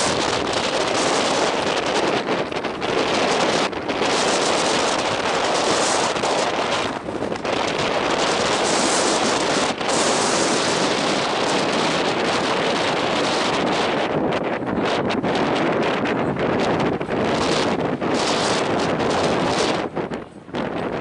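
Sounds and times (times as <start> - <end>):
wind rushing over microphone: 0.0 - 21.0.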